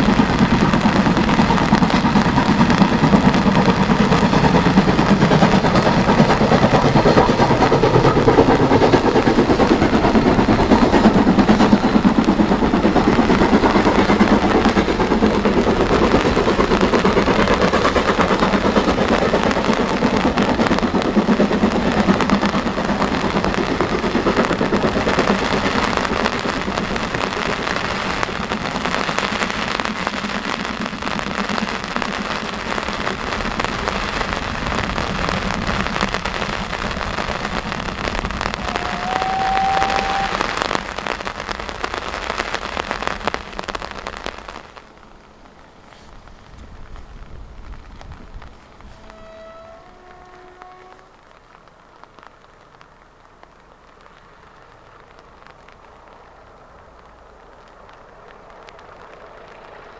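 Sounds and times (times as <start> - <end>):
rain crackling on microphone: 0.0 - 59.9
steam train running: 0.0 - 59.9
short train whistle: 38.6 - 40.4, 48.9 - 51.1.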